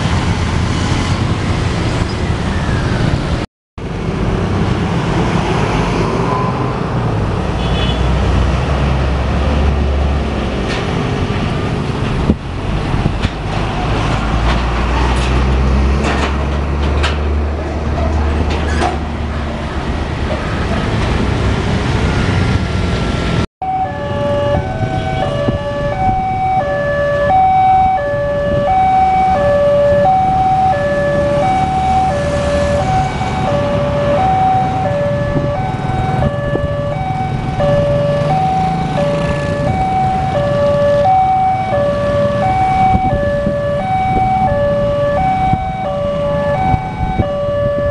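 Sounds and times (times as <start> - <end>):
road traffic passing: 0.0 - 47.9
lorry diesel engine rumbling: 6.5 - 47.9
level crossing alarms ringing: 23.6 - 47.9.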